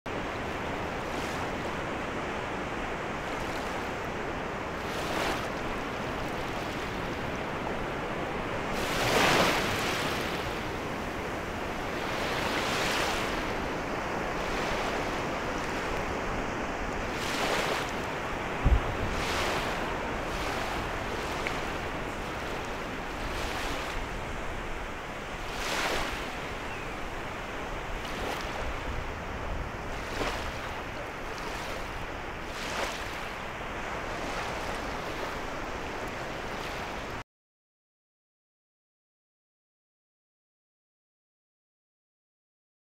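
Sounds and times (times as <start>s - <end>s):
small waves washing on shore: 0.1s - 37.2s
surf hiss: 5.7s - 37.2s
low thump on microphone: 18.6s - 19.2s.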